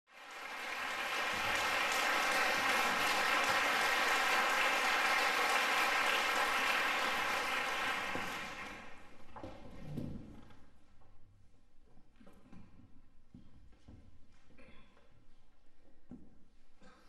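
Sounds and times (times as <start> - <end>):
audience applauding: 0.1 - 9.1.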